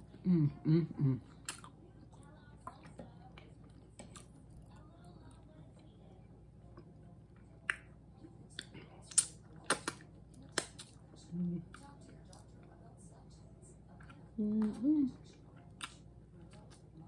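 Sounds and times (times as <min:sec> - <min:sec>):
wet lip smacks: 0:08.5 - 0:11.0.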